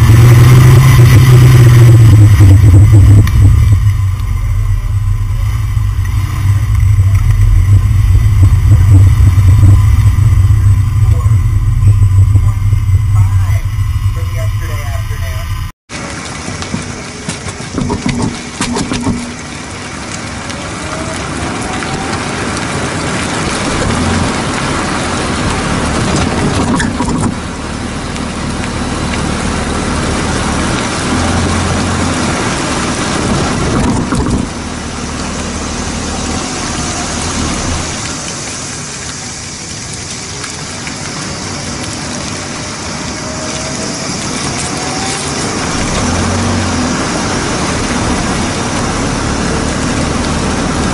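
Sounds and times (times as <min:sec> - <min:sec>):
tyre and road noise: 0:00.0 - 0:50.9
wind rushing past: 0:01.0 - 0:15.7.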